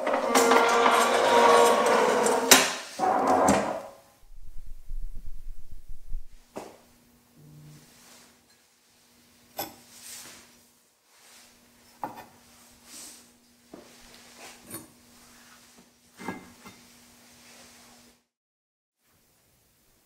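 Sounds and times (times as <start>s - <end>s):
soft rubbing and handling: 7.8s - 9.2s, 9.9s - 11.6s.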